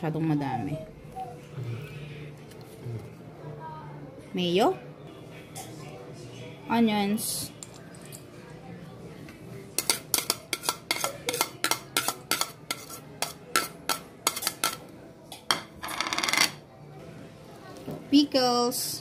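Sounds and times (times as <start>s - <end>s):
metal spoon tapping a plate: 9.8s - 14.8s.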